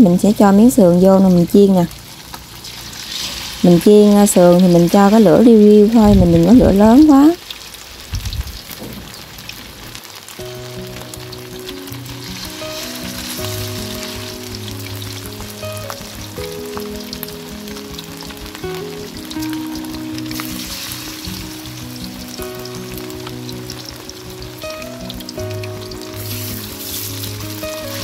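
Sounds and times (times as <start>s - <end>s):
ribs sizzling in oil: 0.0s - 28.0s
soft melody: 10.4s - 28.0s.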